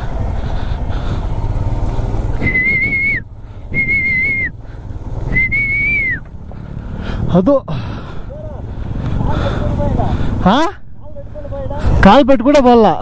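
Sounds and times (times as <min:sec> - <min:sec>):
motorcycle engine running: 0:00.0 - 0:12.0
high wavering whistles: 0:02.3 - 0:04.6, 0:05.2 - 0:06.3.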